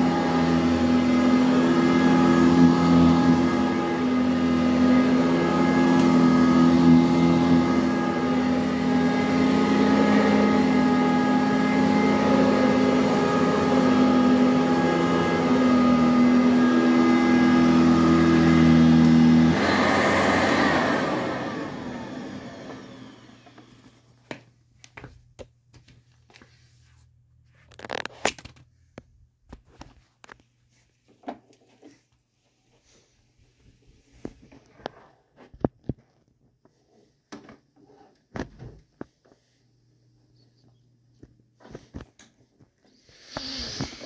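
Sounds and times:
vacuum cleaner running: 0.0 - 24.3, 42.8 - 44.0.

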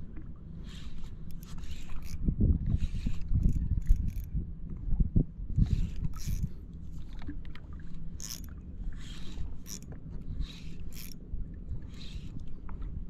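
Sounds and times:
water lapping at boat hull: 0.0 - 13.0
fishing reel hissing: 0.6 - 2.2, 5.7 - 6.5, 8.2 - 8.5, 9.1 - 11.2
wind on microphone: 0.6 - 6.6.

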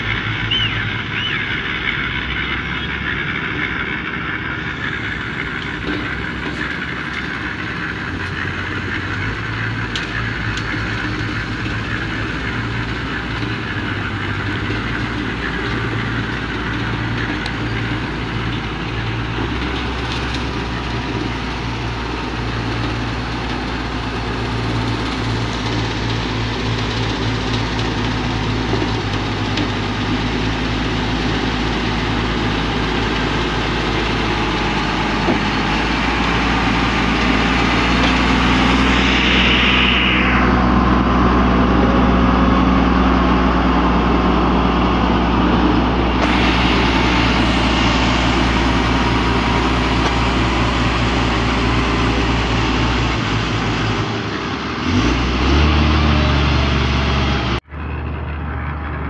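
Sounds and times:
diesel engine running under load: 0.0 - 59.0
grader blade pushing dirt: 0.0 - 59.0.

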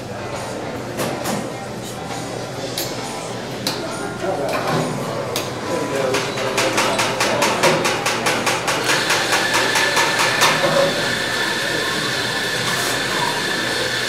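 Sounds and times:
steam wand hissing and whistling: 8.9 - 14.0.

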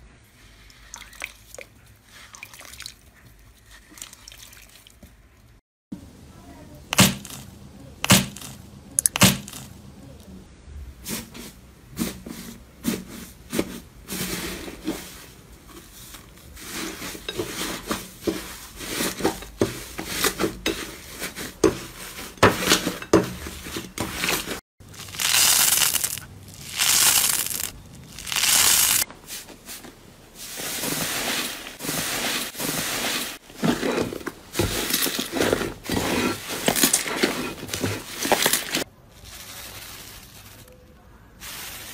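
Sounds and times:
slime squeezed by hand: 24.9 - 29.0.

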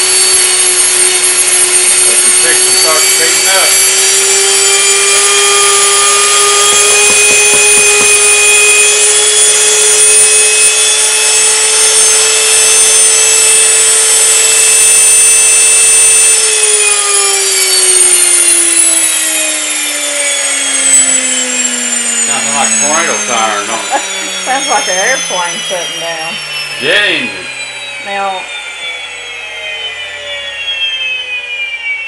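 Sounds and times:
grain mill motor whining: 0.0 - 32.0.

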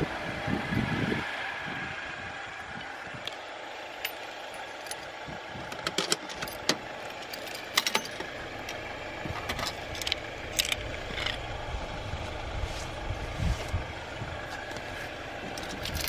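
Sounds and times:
outdoor background noise: 0.0 - 16.0
metallic clicks and clanks of mailbox: 5.7 - 11.4.

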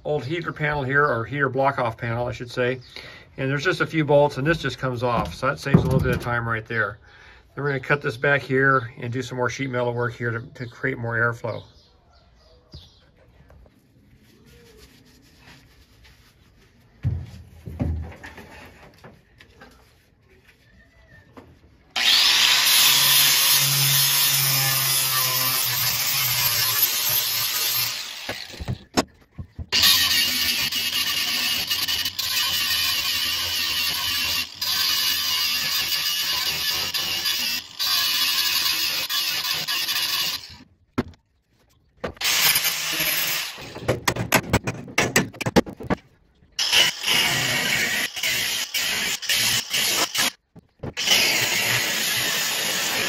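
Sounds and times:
angle grinder cutting metal: 22.0 - 28.8, 29.7 - 40.6, 42.2 - 43.9, 46.6 - 53.0
sharp knocks: 43.8 - 46.0.

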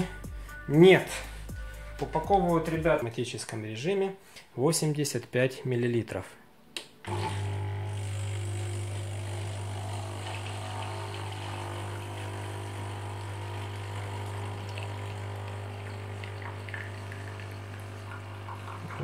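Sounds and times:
coffee streaming into a cup: 7.1 - 19.0
espresso machine pump humming: 7.1 - 19.0.

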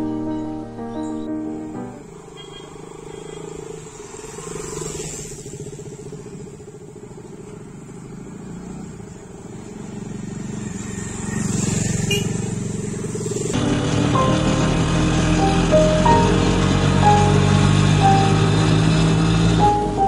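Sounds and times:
background music: 0.0 - 2.3, 13.6 - 20.0
motorcycles passing: 1.8 - 20.0.

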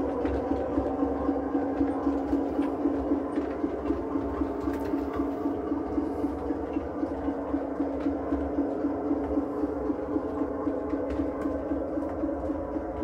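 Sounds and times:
locomotive engine pulsing hum: 0.0 - 13.0.

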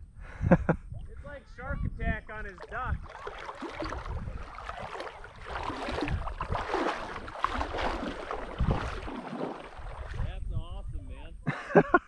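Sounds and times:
wind rumble on microphone: 0.0 - 12.0
water splashing and sloshing: 2.3 - 10.5.

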